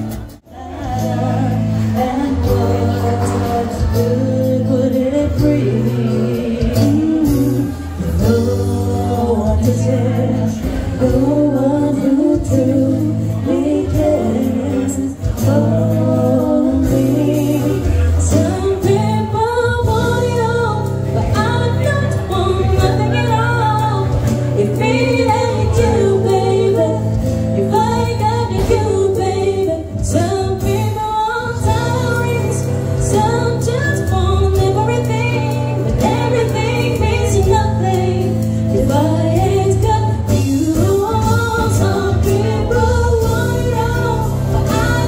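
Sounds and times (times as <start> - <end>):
woman singing through a pa: 0.3 - 45.0
low bass line: 31.6 - 45.0.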